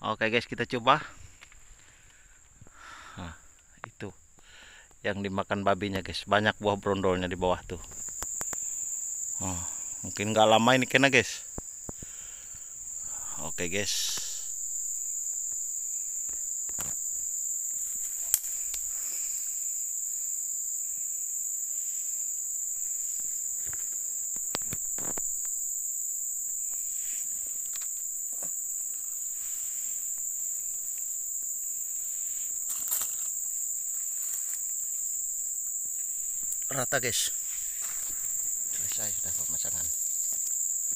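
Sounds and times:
insect chorus: 0.0 - 40.9
rustling dry leaves and soil: 6.8 - 19.7, 26.4 - 40.9.

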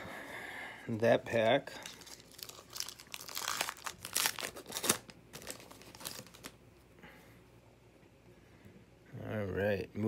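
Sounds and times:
wrapper crinkling and tearing: 1.7 - 6.6.

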